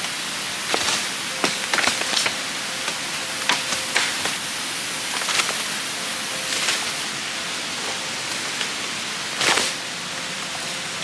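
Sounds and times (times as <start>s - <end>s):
footsteps in dry leaves: 0.0s - 11.0s
forest insects droning: 0.0s - 11.0s
twigs snapping: 0.7s - 4.5s, 5.1s - 5.8s, 6.5s - 7.0s, 9.4s - 9.8s.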